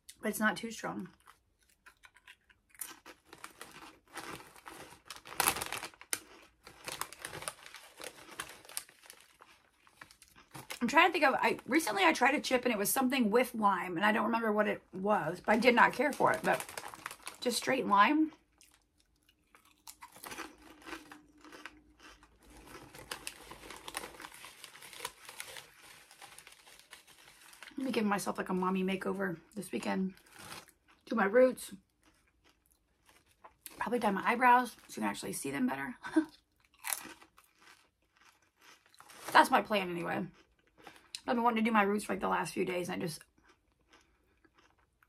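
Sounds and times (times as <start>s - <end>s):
chewing crunchy chips: 1.1s - 11.1s, 15.4s - 27.9s, 30.1s - 33.9s, 36.3s - 41.3s, 43.2s - 45.0s
chip bag crinkling: 1.1s - 12.2s, 15.3s - 28.4s, 30.2s - 30.9s, 36.6s - 39.7s.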